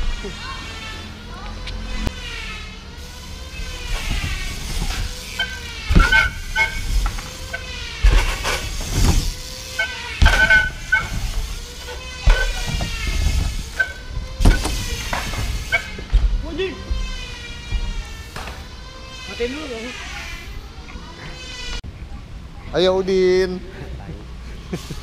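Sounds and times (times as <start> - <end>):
bike tyres whirring on ramp: 0.0 - 20.7
wheels banging on metal ramp: 3.0 - 19.1.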